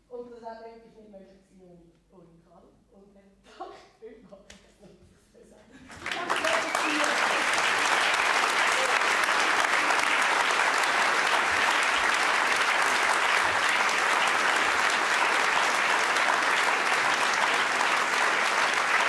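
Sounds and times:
audience applauding: 0:05.9 - 0:19.0.

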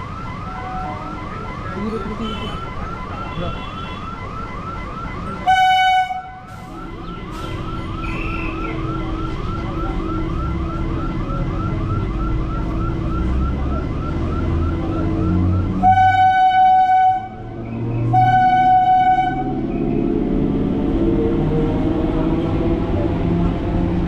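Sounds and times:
warbling warning siren: 0:00.0 - 0:24.0
train horn: 0:15.8 - 0:17.4, 0:18.1 - 0:19.5
train rumble: 0:15.8 - 0:24.0.

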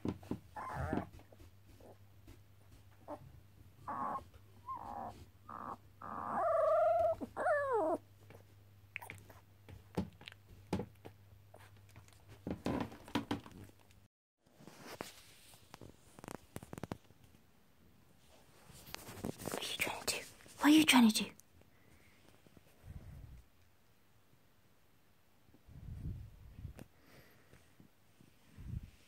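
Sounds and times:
puppy yips and whines: 0:00.5 - 0:01.1, 0:03.8 - 0:08.0
rustles and soft clicks: 0:09.3 - 0:17.5, 0:18.2 - 0:20.6.

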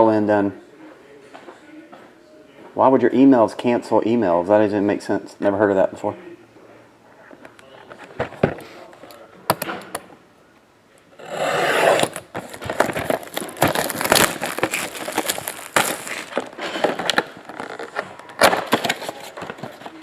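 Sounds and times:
knife slitting plastic wrap: 0:11.7 - 0:17.0
plastic wrap crinkling: 0:12.0 - 0:20.0.

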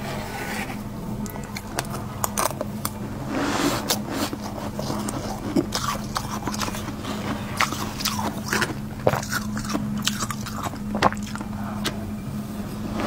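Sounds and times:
low hum: 0:00.0 - 0:13.0
mouth crunching frost: 0:01.2 - 0:11.6.

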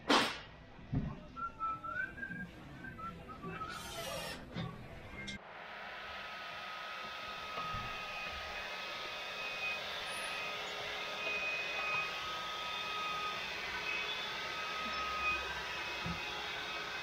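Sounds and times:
handheld vacuum cleaner whine: 0:06.0 - 0:17.0.

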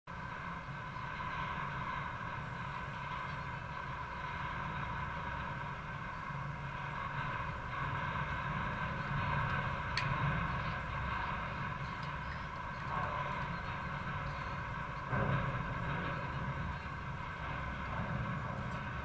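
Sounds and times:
background rumble: 0:00.1 - 0:19.0
constant hum: 0:00.1 - 0:19.0.

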